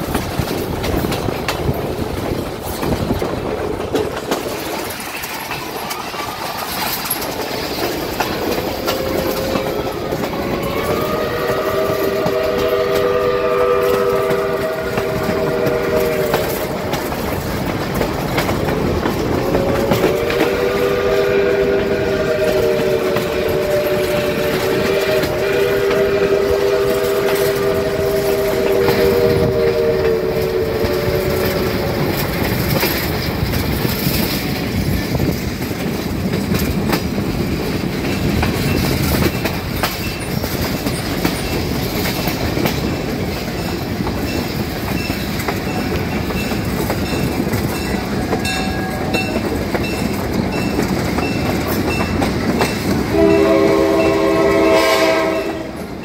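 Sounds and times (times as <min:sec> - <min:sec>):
train wheels clattering on rails: 0:00.0 - 0:56.0
locomotive horn chord: 0:08.7 - 0:17.0, 0:19.4 - 0:31.8, 0:53.1 - 0:55.9.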